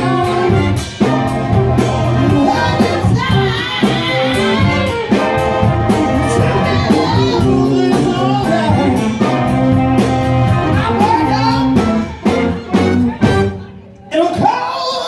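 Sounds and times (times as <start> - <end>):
drum kit beat: 0.0 - 13.7
live band playing dance song: 0.0 - 15.0
person singing: 1.9 - 9.7.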